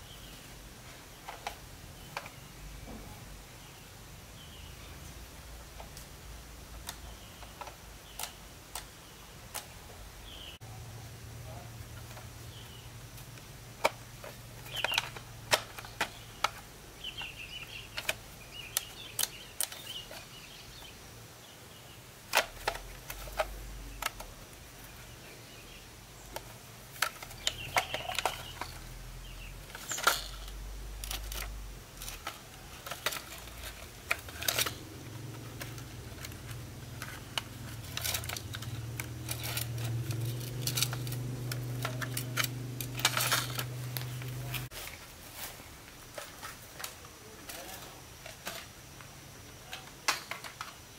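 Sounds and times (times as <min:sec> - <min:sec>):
steady low hum: 0:00.0 - 0:49.5
small tools clicking and clattering: 0:13.2 - 0:20.4, 0:22.3 - 0:25.0, 0:26.2 - 0:50.9.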